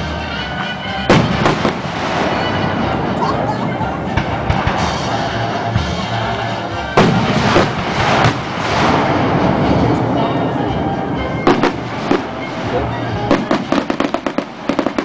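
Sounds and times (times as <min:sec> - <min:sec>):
music playing: 0:00.0 - 0:15.0
noisy rumble: 0:00.0 - 0:15.0
firework shells booming: 0:01.1 - 0:03.0, 0:07.0 - 0:09.8, 0:11.5 - 0:15.0.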